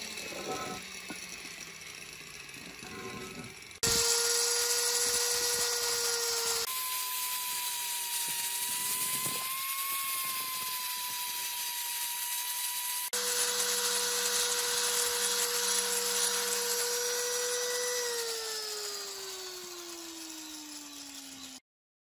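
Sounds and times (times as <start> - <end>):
wire brush scratching metal: 0.0 - 1.1, 2.5 - 3.8
angle grinder motor whine: 0.0 - 21.6.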